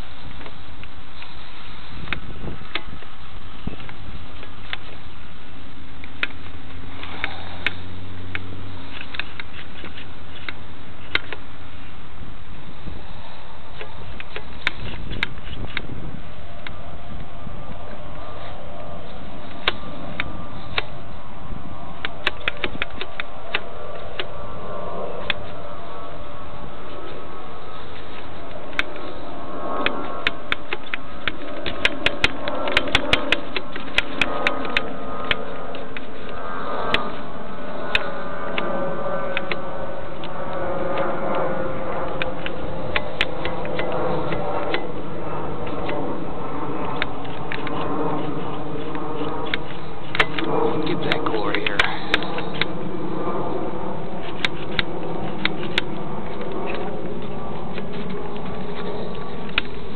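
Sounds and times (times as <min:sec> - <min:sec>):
electric model plane motor and propeller: 0:00.0 - 0:59.9
faint steady hum: 0:00.0 - 0:59.9
wind rushing over microphone: 0:00.0 - 0:59.9
sharp clicks: 0:06.0 - 0:11.5, 0:13.8 - 0:15.9, 0:22.0 - 0:24.4, 0:28.2 - 0:37.2, 0:39.3 - 0:45.0, 0:46.8 - 0:52.8.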